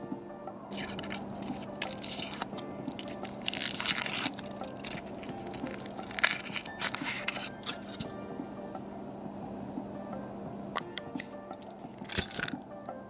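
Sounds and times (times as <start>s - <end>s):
foil wrapper crinkling and tearing: 0.7s - 8.1s, 11.5s - 12.5s.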